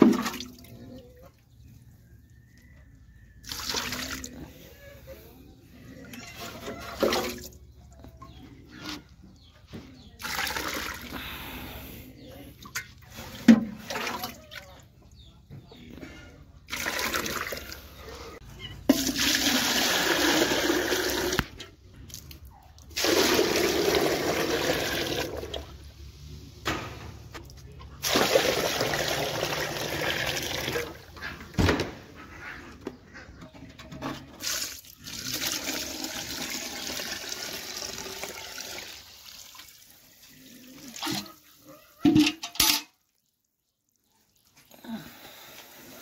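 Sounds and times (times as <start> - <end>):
water gushing into metal bucket: 16.7 - 17.9, 18.9 - 21.5, 22.9 - 25.7, 28.0 - 31.0, 34.4 - 41.3.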